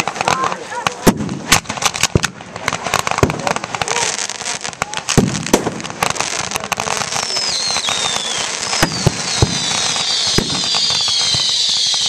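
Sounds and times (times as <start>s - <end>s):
fireworks bangs: 0.0s - 12.0s
fireworks crackling: 0.0s - 12.0s
falling firework whistles: 7.1s - 12.0s.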